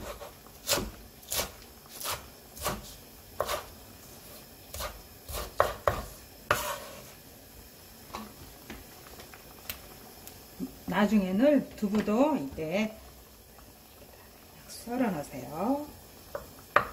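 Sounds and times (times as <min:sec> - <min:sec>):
knife chopping on wooden board: 0:00.0 - 0:03.6, 0:04.7 - 0:06.6.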